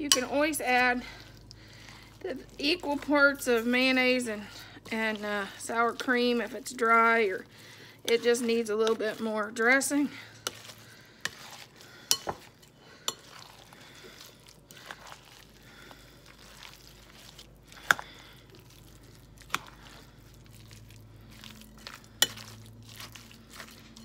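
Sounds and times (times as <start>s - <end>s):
squishing of salad mixture: 0.0s - 24.0s
utensil clinking glass bowl: 11.3s - 12.5s, 13.1s - 13.6s, 21.7s - 24.0s.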